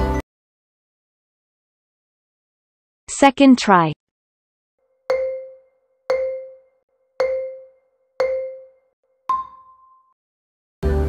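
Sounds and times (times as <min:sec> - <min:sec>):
countdown timer pings: 0:05.1 - 0:10.1
higher end ping: 0:05.1 - 0:10.1.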